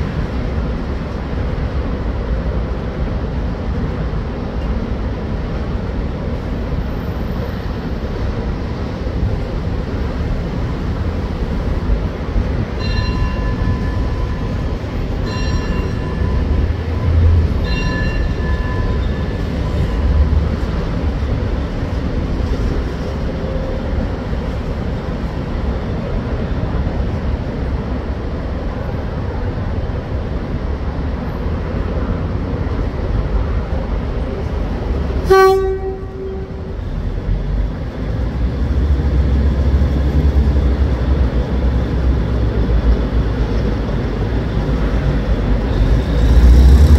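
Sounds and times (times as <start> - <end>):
diesel railcar engine rumble: 0.0 - 46.9
short low-pitched horn toot: 35.2 - 36.8
train horn blasts: 35.2 - 36.8.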